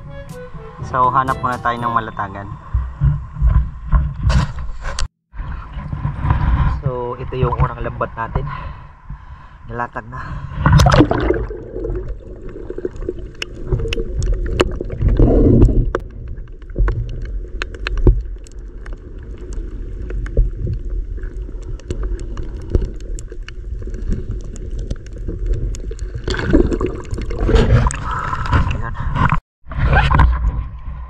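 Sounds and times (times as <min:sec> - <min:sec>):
underwater rumble of moving water: 0:02.1 - 0:31.0
low water gurgling: 0:10.3 - 0:29.4.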